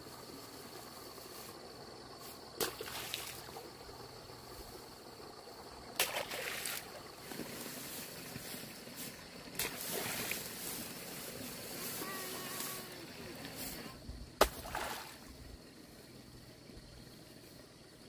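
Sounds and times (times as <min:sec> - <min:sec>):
muddy water sloshing and splashing: 0:02.5 - 0:04.1, 0:05.9 - 0:15.5
sharp splashes: 0:02.6 - 0:03.7, 0:05.9 - 0:07.6, 0:09.5 - 0:10.6, 0:14.4 - 0:15.3.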